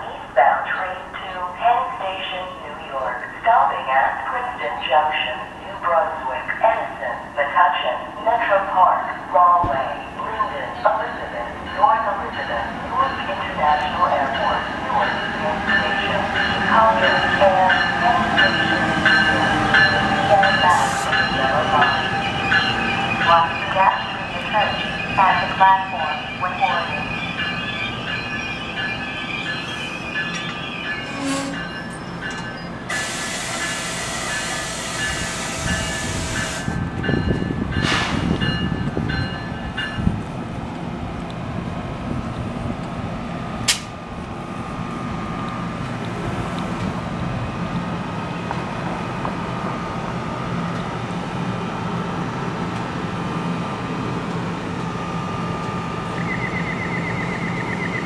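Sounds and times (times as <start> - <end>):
electric train hum: 0.0 - 58.0
sharp click: 43.7 - 43.9.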